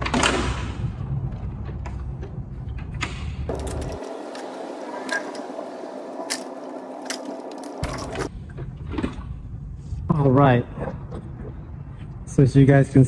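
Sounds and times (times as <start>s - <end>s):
plastic grille creaking: 3.5s - 8.3s.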